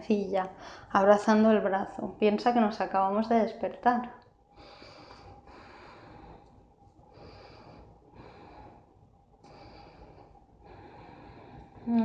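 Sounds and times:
woman breathing deeply: 0:00.6 - 0:00.9, 0:04.5 - 0:12.0.

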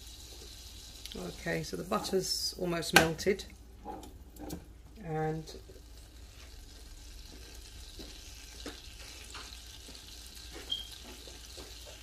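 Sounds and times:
butter sizzling in a pan: 0:00.0 - 0:12.0
short high beep: 0:10.7 - 0:10.9.

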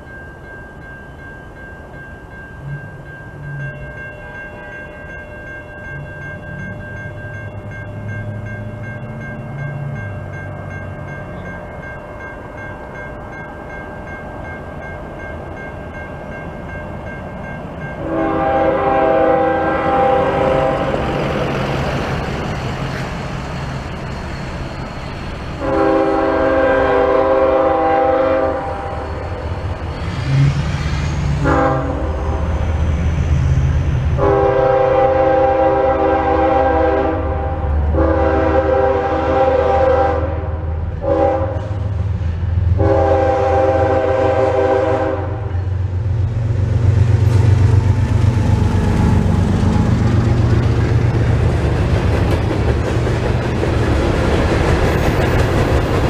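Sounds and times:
train low rumble: 0:00.0 - 0:56.0
locomotive air horn blasts: 0:18.0 - 0:21.2, 0:25.6 - 0:29.0, 0:31.4 - 0:32.5, 0:34.2 - 0:41.8, 0:42.7 - 0:45.6.

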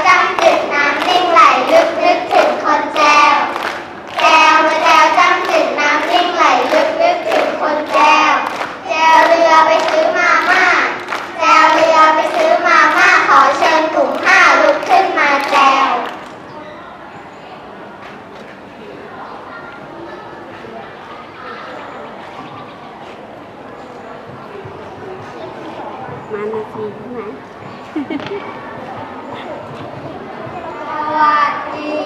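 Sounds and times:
children singing together: 0:00.0 - 0:16.3, 0:30.5 - 0:32.0.

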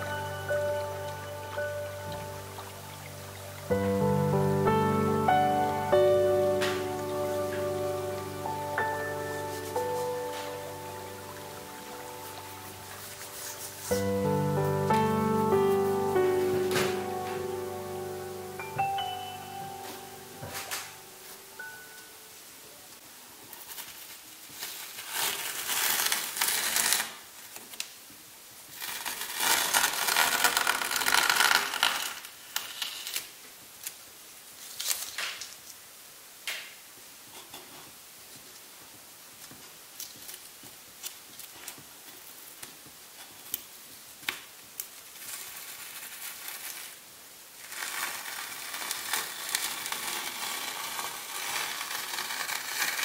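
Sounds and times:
tape ticks and crinkles: 0:23.4 - 0:35.8, 0:38.3 - 0:47.0, 0:47.6 - 0:53.0
masking tape tearing off canvas: 0:24.6 - 0:27.8, 0:28.7 - 0:33.4, 0:47.6 - 0:53.0.

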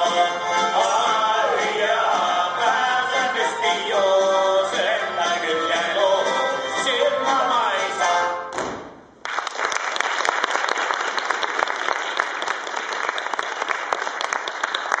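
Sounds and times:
polka music: 0:00.0 - 0:08.6
audience applause: 0:09.2 - 0:15.0.

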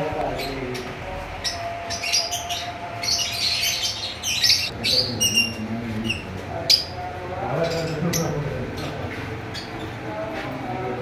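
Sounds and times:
lovebirds chirping and squawking: 0:00.3 - 0:10.0.

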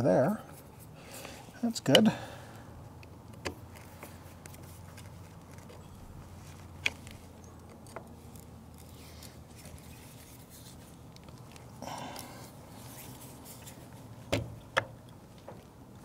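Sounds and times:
faint steady background noise: 0:00.0 - 0:16.0.

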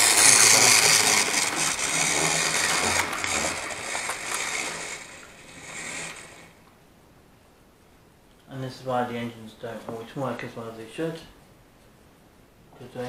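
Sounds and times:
clicks of model train on track: 0:00.0 - 0:06.5
model train motor whirring: 0:00.0 - 0:06.7.

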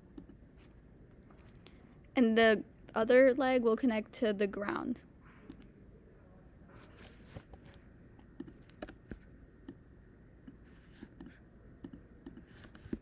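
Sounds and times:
mouse and keyboard clicks: 0:08.4 - 0:09.8.

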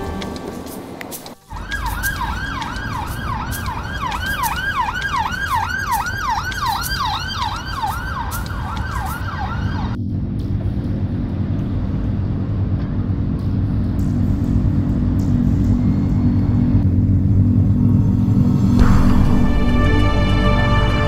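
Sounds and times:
road traffic rumble: 0:00.0 - 0:21.0
siren yelping: 0:01.5 - 0:10.0.

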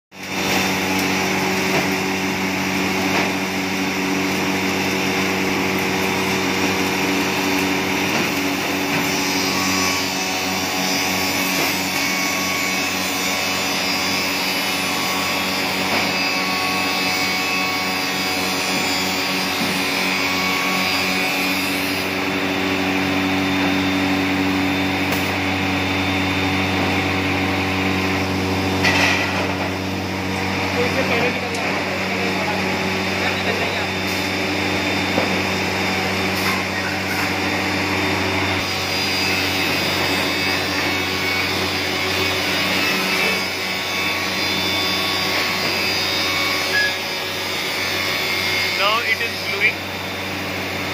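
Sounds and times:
dust extraction hoses rushing: 0:00.3 - 0:17.0, 0:48.7 - 0:50.9.

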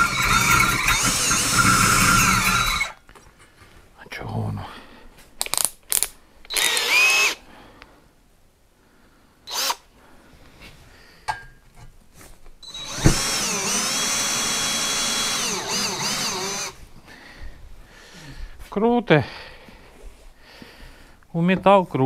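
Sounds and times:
cordless drill running: 0:00.0 - 0:03.0, 0:06.5 - 0:07.4, 0:09.5 - 0:09.8, 0:12.6 - 0:16.8.

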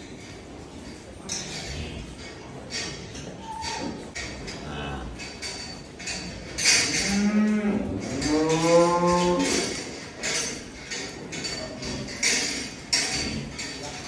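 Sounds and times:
cow mooing: 0:04.6 - 0:05.2, 0:06.9 - 0:09.7.

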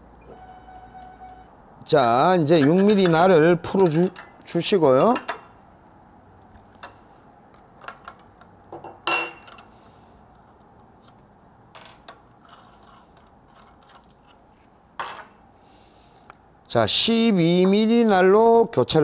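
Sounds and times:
light metallic clicks and clinks: 0:02.5 - 0:05.6, 0:06.4 - 0:09.8, 0:15.0 - 0:16.5.

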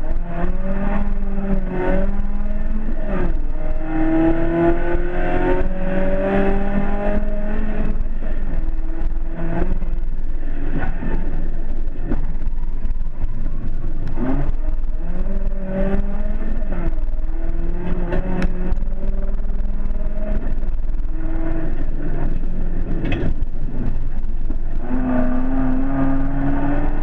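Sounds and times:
rally car engine at full throttle: 0:00.0 - 0:27.0
sharp clicks and knocks: 0:17.8 - 0:18.8, 0:22.2 - 0:24.7.

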